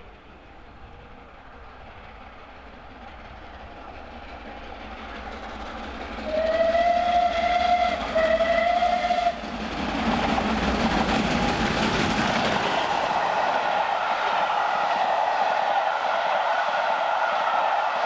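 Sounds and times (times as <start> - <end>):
train rumble and clatter: 0.0 - 18.0
steam locomotive whistle: 6.2 - 9.4.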